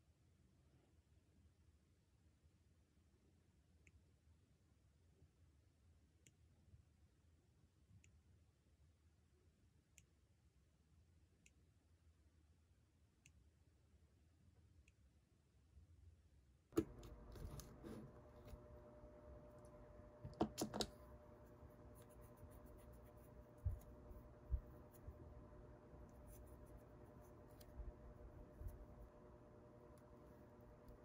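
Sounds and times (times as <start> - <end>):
faint steady hum: 0.0 - 31.0
wipe rubbing over nails: 21.4 - 25.2, 26.0 - 29.1.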